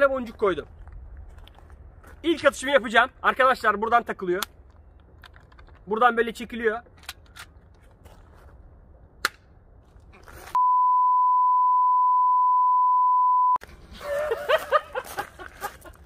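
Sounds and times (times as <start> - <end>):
high test-tone beep: 10.6 - 13.6
people laughing: 13.9 - 16.0.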